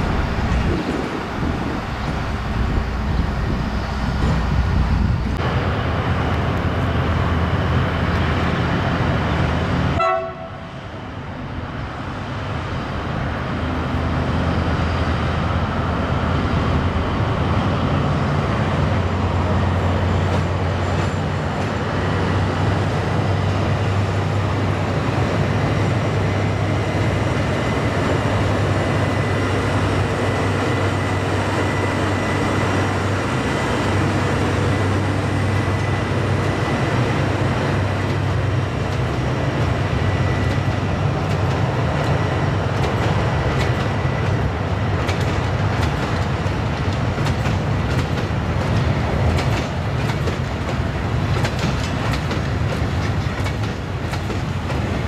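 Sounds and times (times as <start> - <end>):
diesel locomotive engine drone: 0.0 - 55.0.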